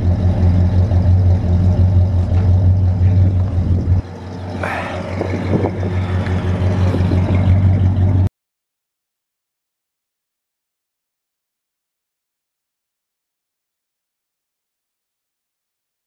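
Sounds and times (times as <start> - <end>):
car engine idling: 0.0 - 8.3.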